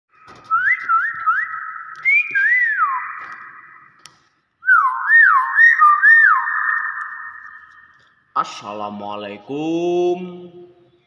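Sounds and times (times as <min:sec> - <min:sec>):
bird whistling: 0:00.5 - 0:04.0, 0:04.6 - 0:08.0.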